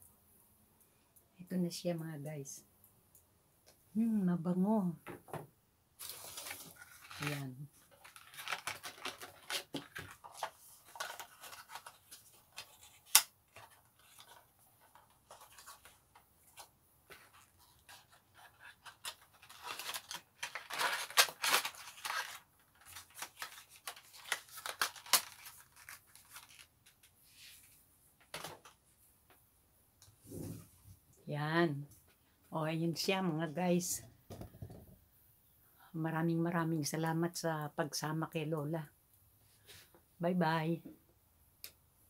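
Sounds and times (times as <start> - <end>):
cardboard rustling: 6.0 - 28.7.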